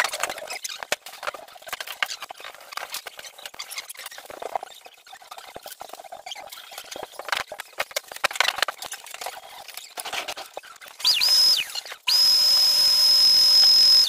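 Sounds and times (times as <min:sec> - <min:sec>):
power tool motor whining: 0:11.0 - 0:14.0.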